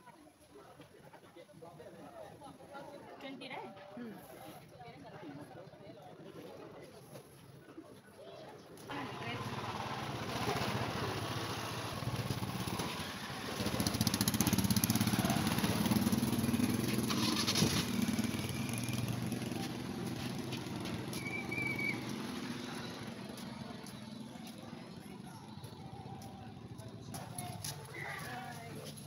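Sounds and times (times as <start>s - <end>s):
motorcycle engine passing by: 8.9s - 29.0s.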